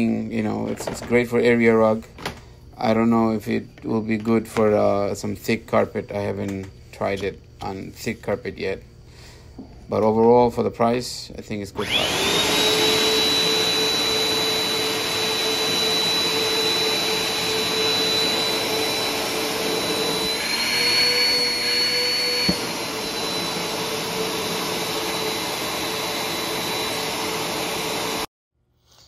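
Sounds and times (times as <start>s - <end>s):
vacuum cleaner motor whine: 11.7s - 28.3s.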